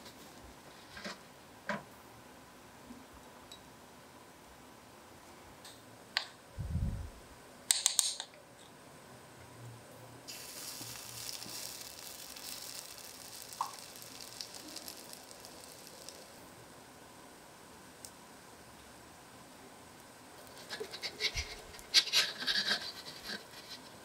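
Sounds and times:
batter sizzling in skillet: 0:10.3 - 0:16.8.

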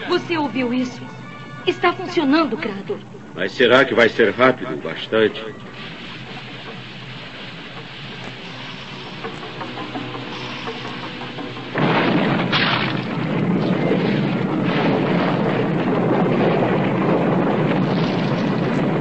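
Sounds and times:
low steady hum: 0:00.0 - 0:19.0
loud rumbling roar: 0:11.8 - 0:19.0.

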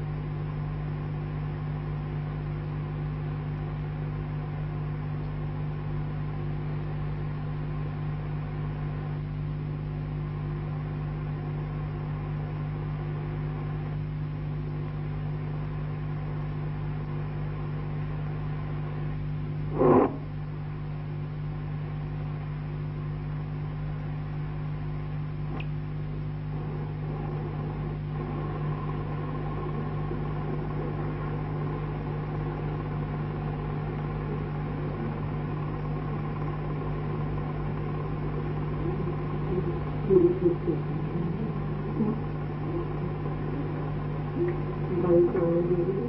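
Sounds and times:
electrical hum and hiss: 0:00.0 - 0:46.0.

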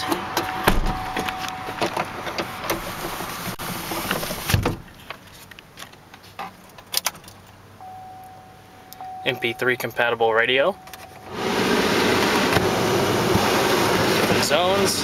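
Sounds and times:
highway traffic rumble: 0:00.0 - 0:15.0
heavy thump: 0:00.7 - 0:01.3.

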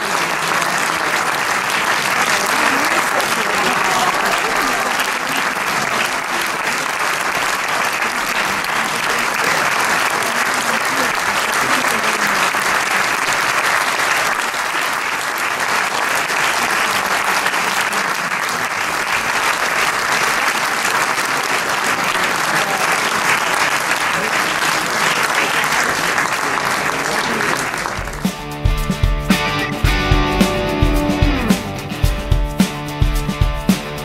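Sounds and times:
voices: 0:00.0 - 0:13.4
audience applauding: 0:00.0 - 0:34.0.

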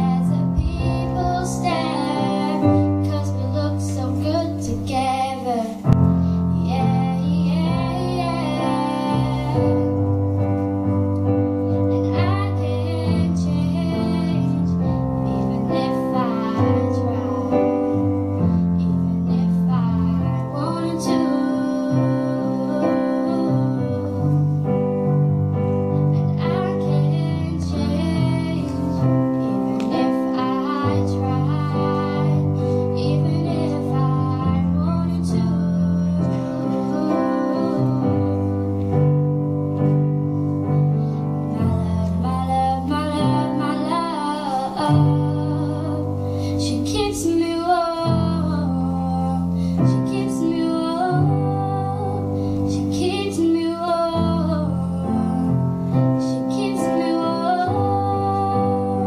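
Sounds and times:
girl singing a slow ballad: 0:00.0 - 0:59.0
keyboard piano chords: 0:00.0 - 0:59.0.

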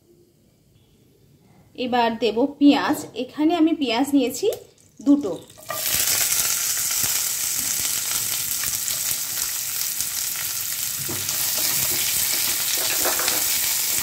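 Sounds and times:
onions sizzling in oil: 0:04.8 - 0:14.0
spatula scraping pan: 0:11.2 - 0:14.0.

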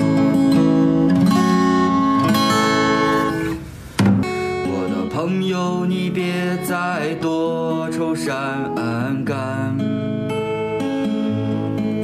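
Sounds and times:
music passage: 0:00.0 - 0:08.0
strummed acoustic guitar: 0:00.0 - 0:12.0.

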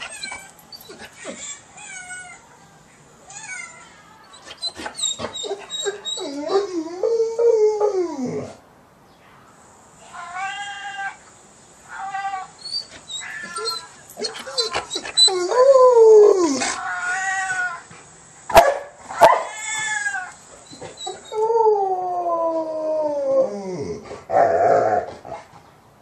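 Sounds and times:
dog whining: 0:00.0 - 0:02.3, 0:04.3 - 0:08.6, 0:12.0 - 0:17.7, 0:20.6 - 0:21.5.

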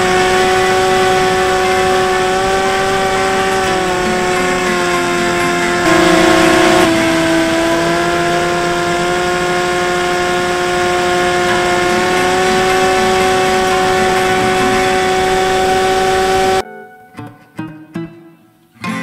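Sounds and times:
electric motor and propeller whining: 0:00.0 - 0:16.6.

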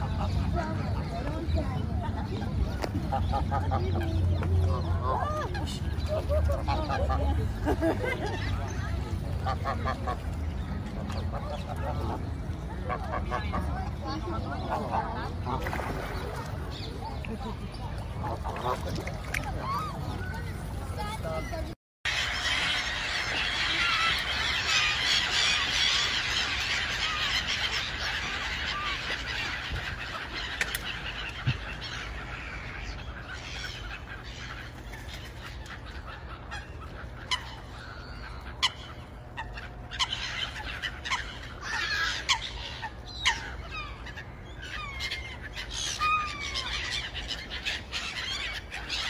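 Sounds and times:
gulls calling: 0:00.0 - 0:49.0
low steady rumble: 0:00.0 - 0:49.0.

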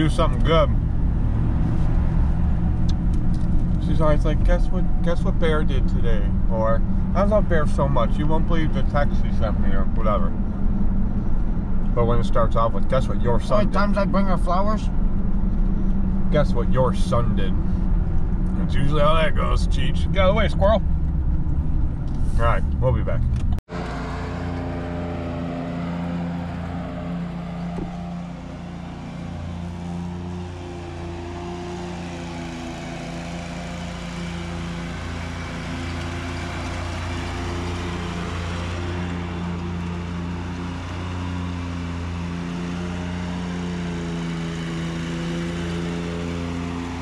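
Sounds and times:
lawn mower engine humming: 0:00.0 - 0:05.1, 0:23.7 - 0:47.0.

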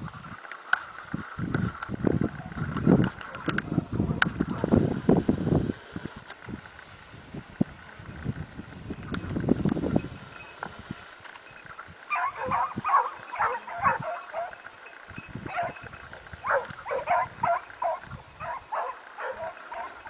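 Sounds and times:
dogs barking: 0:12.1 - 0:14.6, 0:15.4 - 0:15.8, 0:16.4 - 0:20.0.

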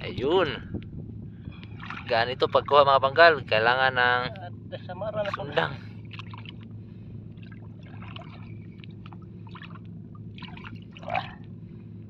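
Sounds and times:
steady low hum: 0:00.0 - 0:12.0
seawater sloshing and splashing: 0:01.5 - 0:02.8, 0:05.2 - 0:11.9.

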